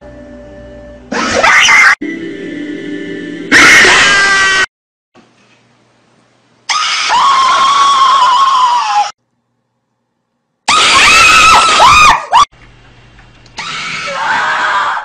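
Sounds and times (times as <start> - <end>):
person screaming in fright: 3.5 - 4.7, 6.7 - 9.2, 10.7 - 12.5, 13.6 - 15.0.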